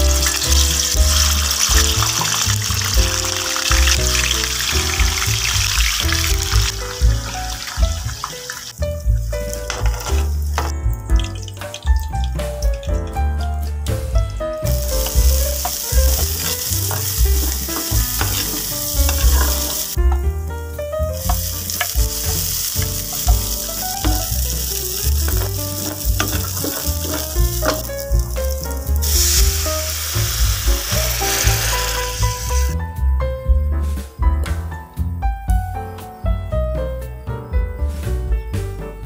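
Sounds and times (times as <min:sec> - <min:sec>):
hot oil sizzling in a frying pan: 0:00.0 - 0:13.2, 0:14.6 - 0:20.1, 0:20.7 - 0:32.8
background music with bass: 0:00.0 - 0:39.0.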